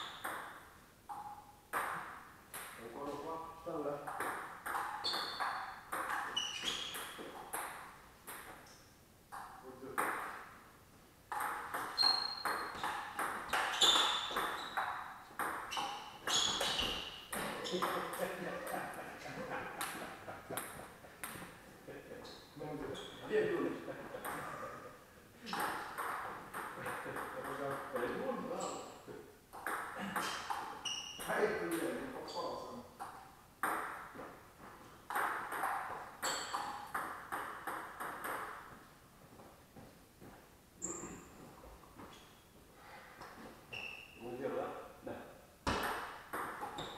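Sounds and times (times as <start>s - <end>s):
table tennis ball hits: 0.0s - 2.8s, 4.1s - 8.6s, 9.3s - 10.6s, 11.3s - 18.2s, 25.5s - 28.2s, 29.5s - 31.3s, 33.0s - 34.3s, 35.1s - 38.7s, 45.6s - 46.9s.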